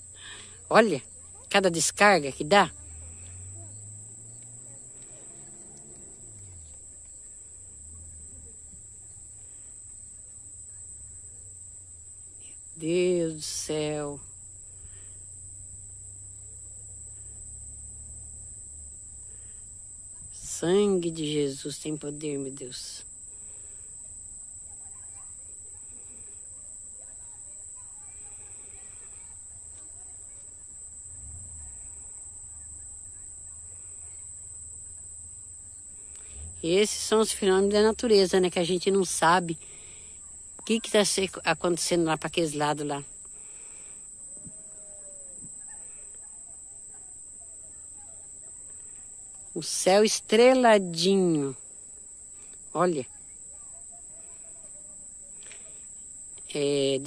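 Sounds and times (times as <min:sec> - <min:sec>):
faint low rumble: 0:00.0 - 0:46.3
crickets trilling: 0:00.0 - 0:57.0
faint low hum: 0:00.0 - 0:57.0.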